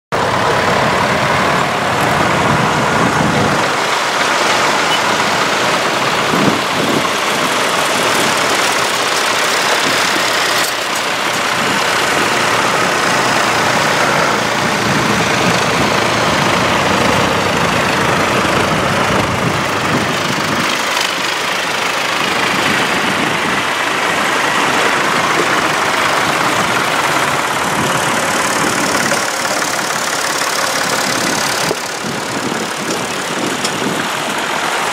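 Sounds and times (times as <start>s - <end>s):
tractors driving past: 0.1s - 34.9s.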